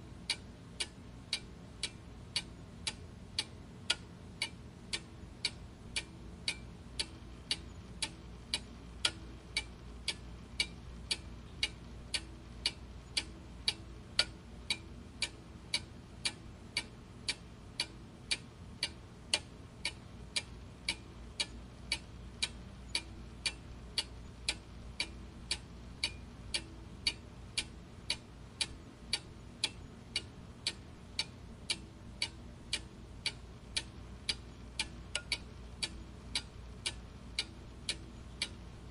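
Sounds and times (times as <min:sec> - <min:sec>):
faint low hum: 0:00.0 - 0:38.9
clock ticking: 0:00.2 - 0:38.9.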